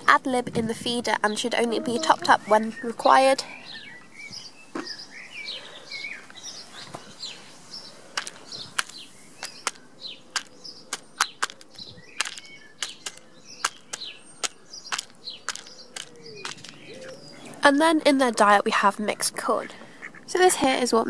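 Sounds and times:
small birds chirping: 0.0s - 21.0s
beak clicking on plastic bowl: 8.2s - 16.9s.

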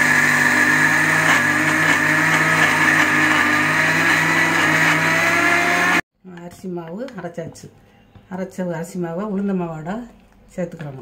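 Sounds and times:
mixer grinder grinding rice: 0.0s - 6.0s.

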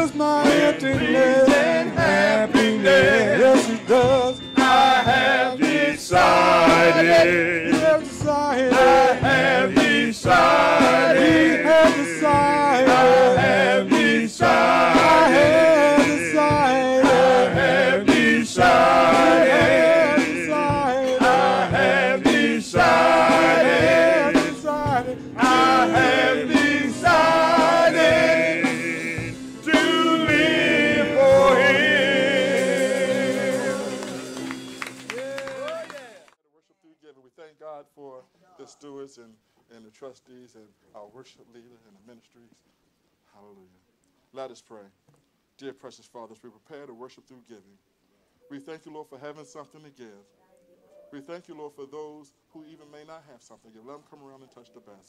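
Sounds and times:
male vocal group singing gospel: 0.0s - 34.4s
instrumental backing: 0.0s - 35.7s.

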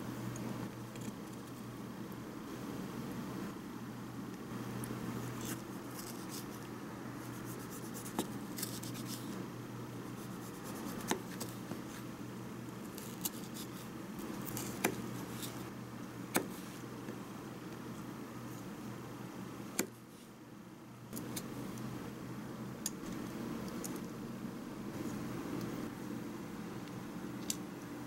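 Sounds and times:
steady low hum: 0.0s - 28.0s
knife slicing tomato: 10.2s - 12.0s.

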